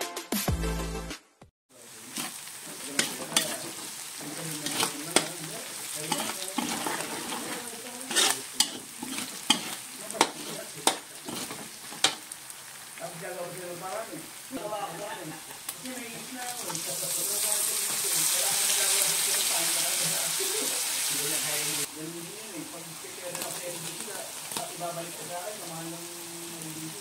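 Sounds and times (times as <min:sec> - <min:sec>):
meat sizzling in hot oil: 0:01.7 - 0:27.0
metal spatula scraping a wok: 0:02.0 - 0:12.3.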